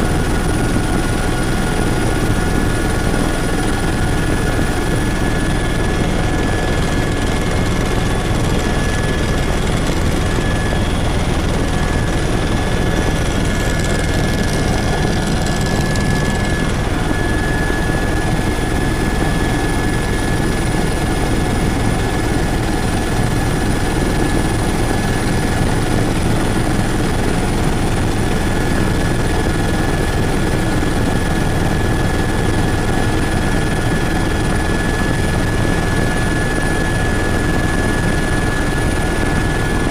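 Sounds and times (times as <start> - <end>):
helicopter engine and rotor drone: 0.0 - 39.9
thin steady whine: 0.0 - 39.9.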